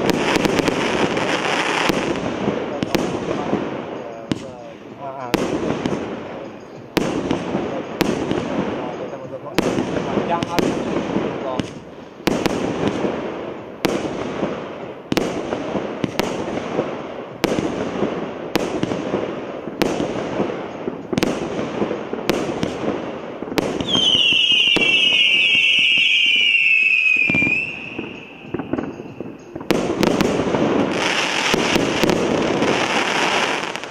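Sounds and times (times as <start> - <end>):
dense firework crackle: 0.0 - 33.9
firework shots and bursts: 0.0 - 33.9
firework whistles: 23.6 - 33.9.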